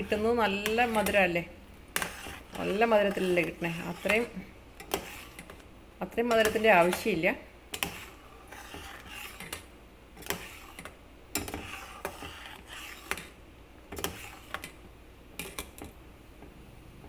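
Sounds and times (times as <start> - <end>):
metal spoon scraping saucepan: 0.0 - 5.6, 6.2 - 14.8
milk swishing: 0.2 - 5.7, 7.8 - 13.4, 14.0 - 14.8.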